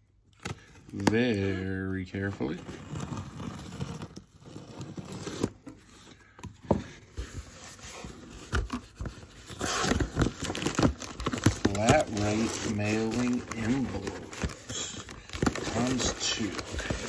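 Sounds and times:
cardboard flaps rustling: 0:05.1 - 0:17.0.

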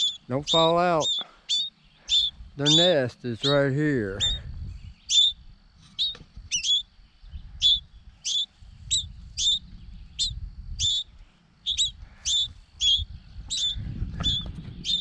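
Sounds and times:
baby birds chirping: 0:00.0 - 0:15.0.

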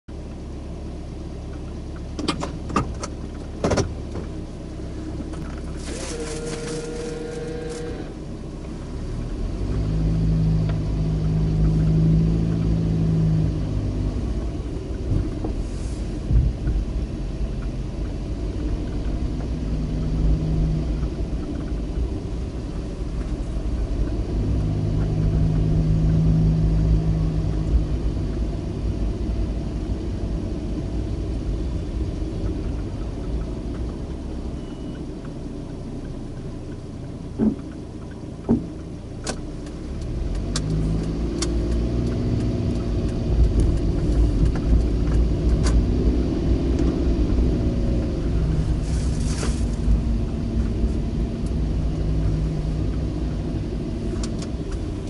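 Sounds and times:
car engine and road rumble: 0:00.0 - 0:55.0
brief steady tone: 0:34.4 - 0:35.2.

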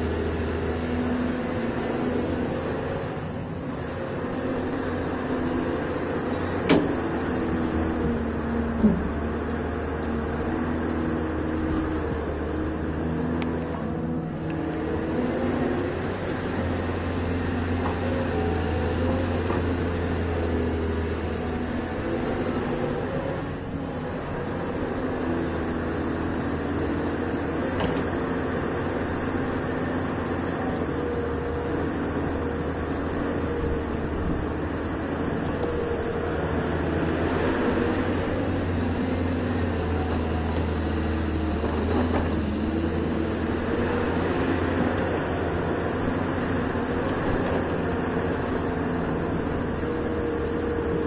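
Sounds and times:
excavator diesel engine running: 0:00.0 - 0:51.0.

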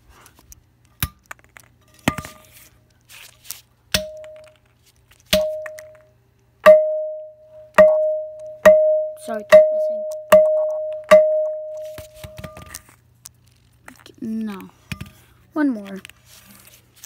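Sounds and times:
metal tool striking floor: 0:04.0 - 0:04.6, 0:05.3 - 0:06.0, 0:06.6 - 0:12.8.

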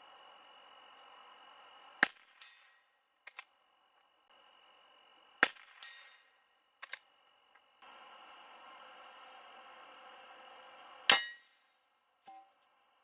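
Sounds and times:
rifle shot: 0:02.0 - 0:02.7, 0:05.4 - 0:06.2
ring off steel target: 0:11.1 - 0:11.5.

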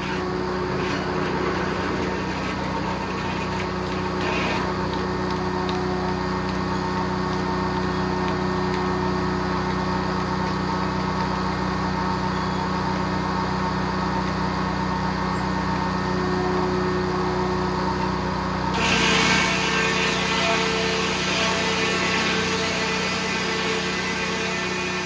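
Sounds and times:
circular sawmill running: 0:00.0 - 0:25.0.

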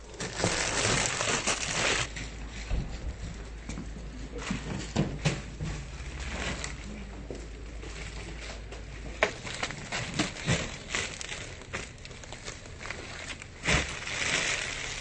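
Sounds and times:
carrier bags rustling: 0:00.0 - 0:03.2, 0:04.2 - 0:15.0
bags thudding into truck bed: 0:13.6 - 0:15.0.

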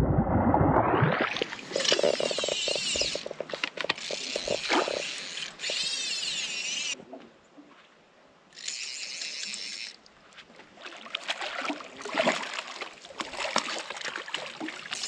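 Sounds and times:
fish splashing in water: 0:10.8 - 0:15.0.

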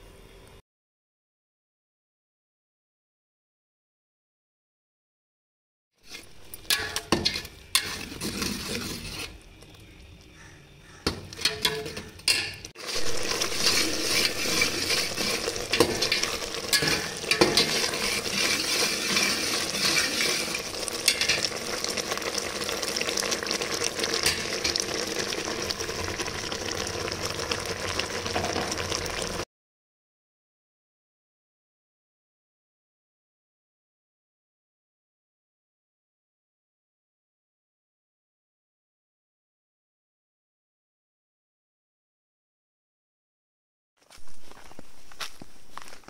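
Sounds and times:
spatula scraping metal pot: 0:06.1 - 0:09.8, 0:10.4 - 0:26.3
bubbling syrup sizzling: 0:06.1 - 0:29.4.

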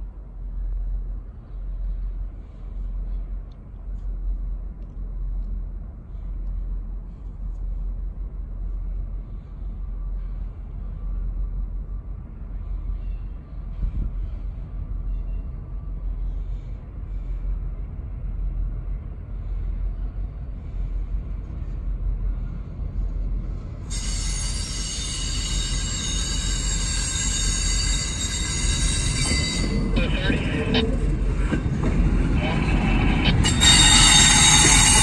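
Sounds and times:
train rumbling past: 0:00.0 - 0:35.0
high-pitched wheel squeal: 0:23.9 - 0:30.7, 0:32.6 - 0:35.0.

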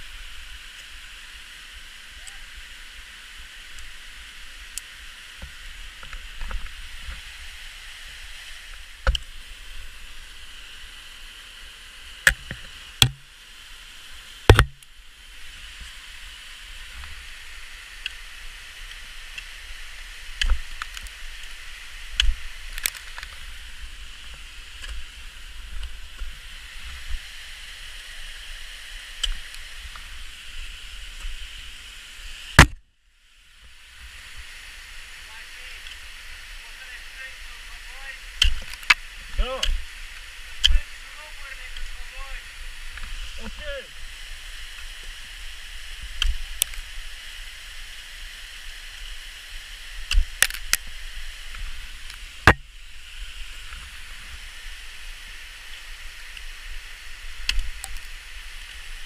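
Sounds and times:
steady hiss: 0:00.0 - 0:59.0
ice axes striking ice: 0:12.3 - 0:13.2, 0:14.5 - 0:14.8, 0:32.6 - 0:32.8.

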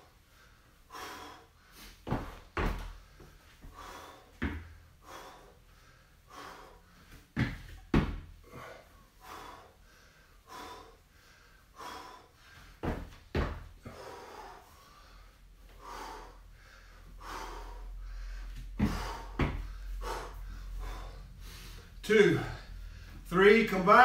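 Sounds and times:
man breathing hard: 0:00.0 - 0:23.3
heavy foot thumps on rubber flooring: 0:02.0 - 0:04.8, 0:07.2 - 0:08.4, 0:12.8 - 0:13.8, 0:18.6 - 0:20.2.

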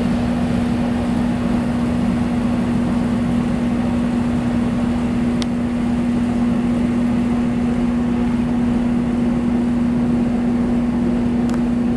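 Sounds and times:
machine hum: 0:00.0 - 0:11.9.

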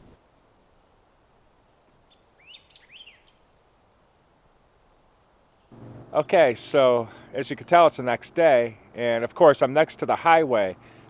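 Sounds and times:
faint birdsong: 0:00.0 - 0:09.1.

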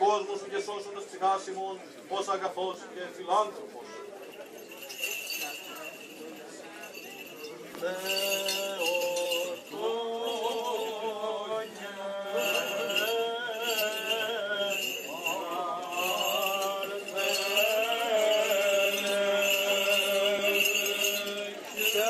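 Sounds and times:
person chanting slow melody: 0:07.8 - 0:22.0.

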